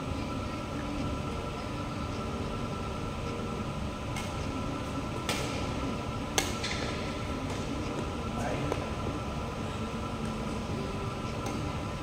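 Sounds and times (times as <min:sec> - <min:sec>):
steady low hum: 0:00.0 - 0:12.0
racket hitting shuttlecock: 0:05.2 - 0:05.7, 0:06.3 - 0:08.0.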